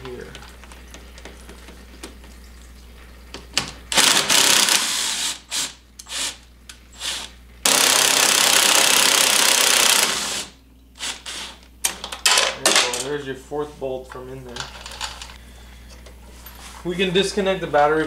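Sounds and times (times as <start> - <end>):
cordless drill spinning: 3.9 - 6.4, 7.0 - 11.6.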